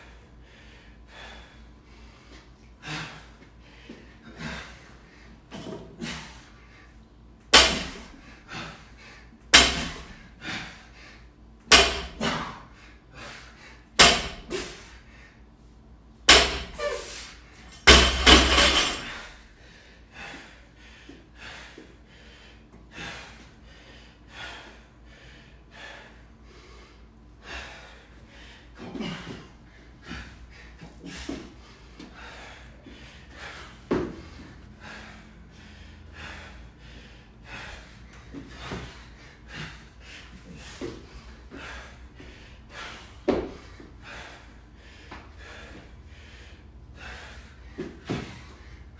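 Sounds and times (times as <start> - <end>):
barbell slamming on rubber mat: 7.6 - 8.1, 9.6 - 10.1, 11.7 - 12.5, 14.0 - 14.6, 16.3 - 16.8, 17.9 - 19.2
barbell plates clattering: 17.8 - 19.2.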